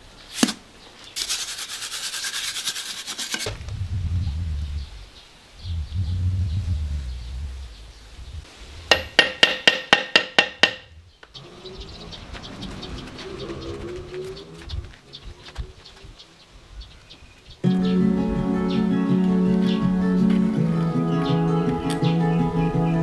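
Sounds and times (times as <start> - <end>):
metal tool tapping concrete block: 8.9 - 10.8.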